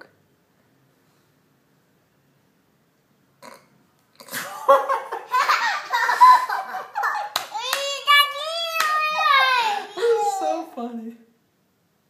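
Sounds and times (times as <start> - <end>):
man and toddler laughing: 4.3 - 7.4.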